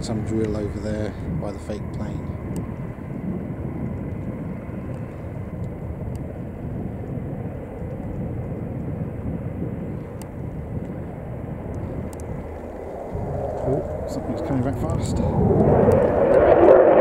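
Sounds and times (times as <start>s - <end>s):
distant jet engines rumbling: 0.0s - 17.0s
faint thin whine: 0.0s - 17.0s
small clicks: 11.7s - 12.6s.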